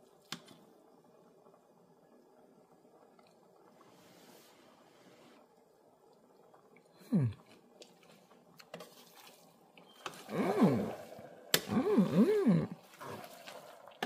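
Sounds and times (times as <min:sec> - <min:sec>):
person humming in enjoyment: 0:07.0 - 0:07.4, 0:10.3 - 0:11.0, 0:11.6 - 0:12.8.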